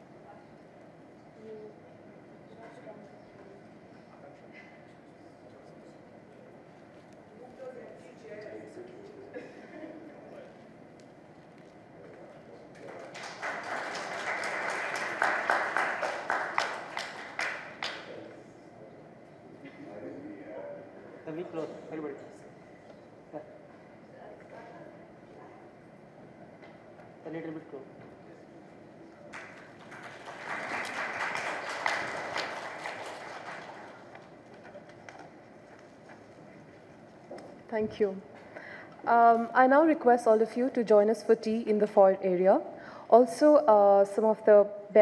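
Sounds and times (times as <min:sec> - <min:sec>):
audience applauding: 0:12.8 - 0:18.2, 0:29.3 - 0:35.9.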